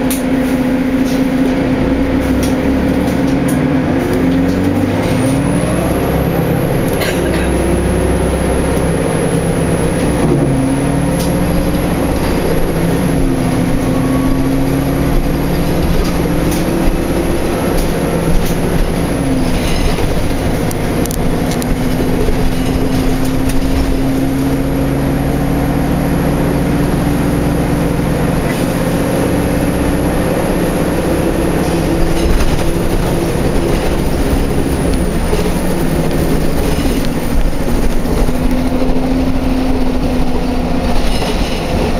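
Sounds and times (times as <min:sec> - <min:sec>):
bus engine whine: 0:00.0 - 0:41.9
road rumble: 0:00.0 - 0:41.9
rattles: 0:11.1 - 0:24.6, 0:31.6 - 0:41.9.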